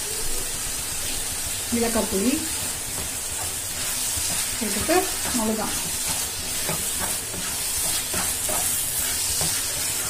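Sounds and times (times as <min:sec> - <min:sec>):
food sizzling in a pan: 0:00.0 - 0:10.0
wooden spatula scraping a pan: 0:02.0 - 0:10.0.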